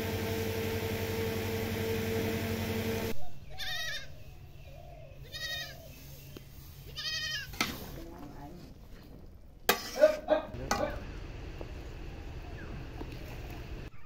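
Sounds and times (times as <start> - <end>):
electric fan humming: 0.0 - 3.2, 10.5 - 13.9
goat bleating: 3.6 - 4.1, 5.2 - 5.8, 6.9 - 7.6.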